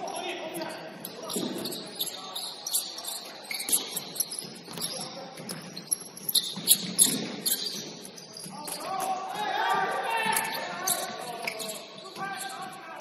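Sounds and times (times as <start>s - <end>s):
basketball shoes squeaking: 0.0s - 13.0s.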